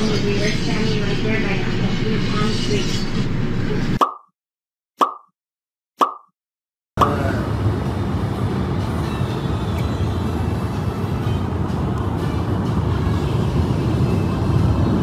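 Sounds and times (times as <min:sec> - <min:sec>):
short pop with falling tone: 0:06.0 - 0:06.3
distant city traffic rumble: 0:07.0 - 0:15.0.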